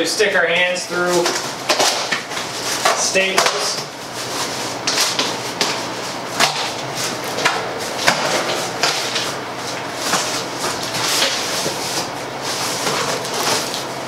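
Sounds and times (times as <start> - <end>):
cardboard scraping and rustling: 8.3 - 13.9.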